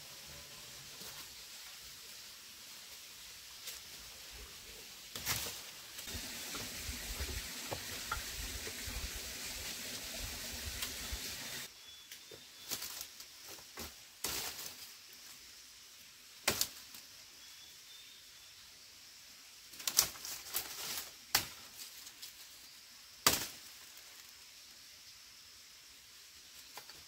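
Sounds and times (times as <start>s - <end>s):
footsteps crunching on dry leaves: 5.2s - 8.8s
dead branches snapping: 16.4s - 16.8s, 19.8s - 21.9s, 23.2s - 23.7s
twigs cracking: 19.8s - 22.3s.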